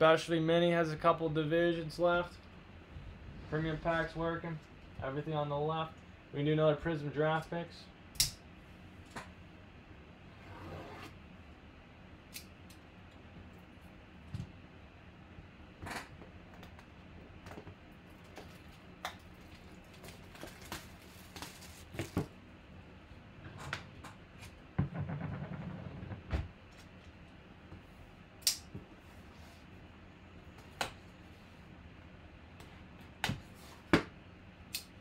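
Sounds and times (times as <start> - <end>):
scraping on table: 10.4 - 11.2.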